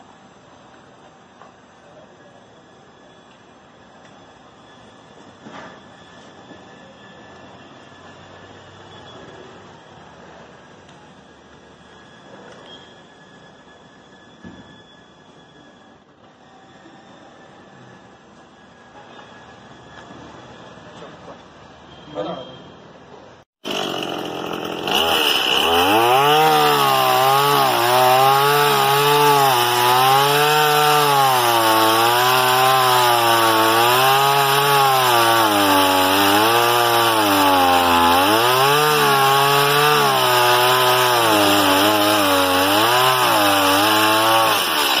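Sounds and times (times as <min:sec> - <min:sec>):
chainsaw cutting through log: 0:23.6 - 0:45.0.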